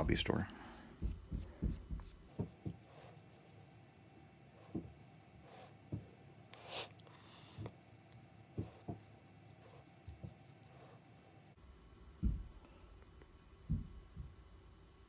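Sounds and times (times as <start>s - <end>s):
thumps: 0.8s - 2.8s, 11.6s - 15.0s
soft handling knocks: 11.6s - 14.6s.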